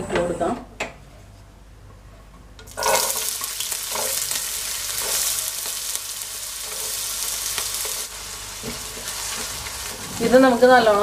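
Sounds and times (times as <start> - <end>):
onion and ginger sizzling in oil: 2.7 - 11.0.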